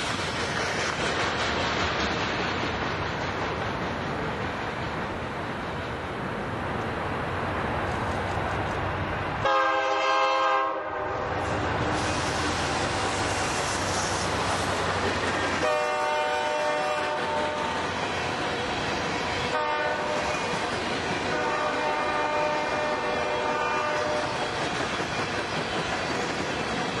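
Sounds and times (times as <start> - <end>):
running train noise: 0.0 - 27.0
model train horn blasts: 9.4 - 11.3, 15.6 - 17.8, 19.5 - 20.2, 21.3 - 24.4.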